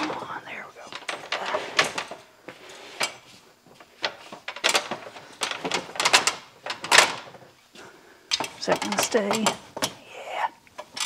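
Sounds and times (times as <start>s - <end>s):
metal ladder clanking: 4.0s - 7.4s, 8.3s - 10.0s.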